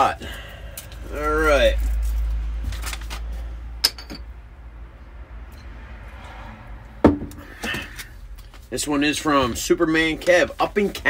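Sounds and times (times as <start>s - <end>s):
glass clink: 3.8s - 4.3s
bottle knocking on wooden table: 7.0s - 7.4s.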